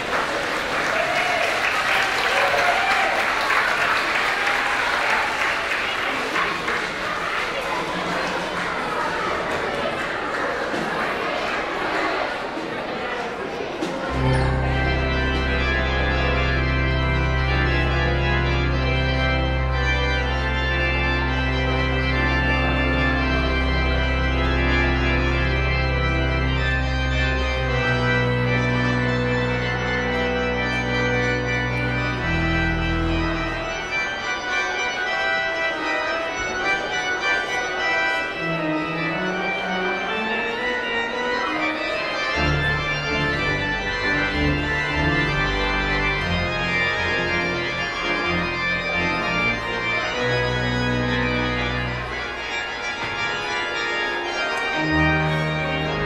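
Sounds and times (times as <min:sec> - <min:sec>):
organ playing chords: 0:13.8 - 0:56.0.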